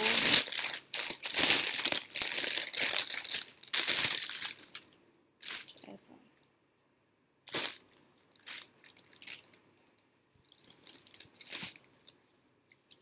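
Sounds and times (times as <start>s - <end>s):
plastic bag crinkling: 0.0s - 5.9s, 7.5s - 9.6s, 10.5s - 11.9s.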